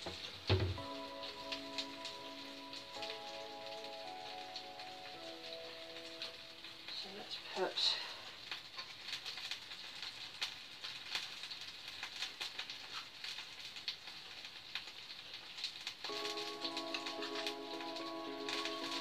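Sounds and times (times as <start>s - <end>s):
music: 0.0s - 6.9s, 16.1s - 19.0s
sausages sizzling in oil: 0.0s - 19.0s.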